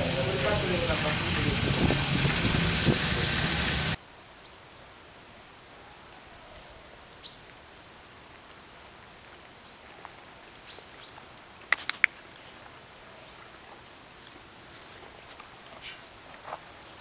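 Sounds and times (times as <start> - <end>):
background hiss: 0.0 - 17.0
sharp clicks: 11.7 - 12.2.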